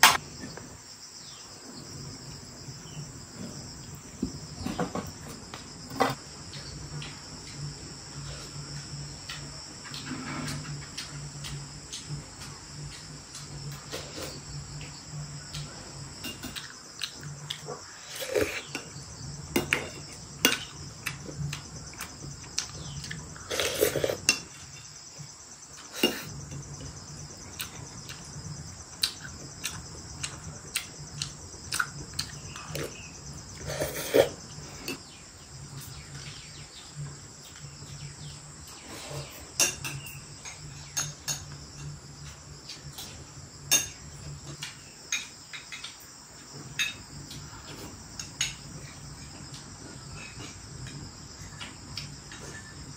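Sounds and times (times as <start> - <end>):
crickets chirping: 0.0 - 52.9
cutlery and dishes clinking: 39.6 - 42.0.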